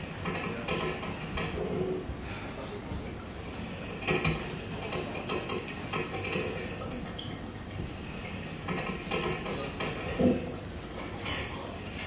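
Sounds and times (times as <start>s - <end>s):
glassware and cutlery clinking: 9.2s - 12.0s.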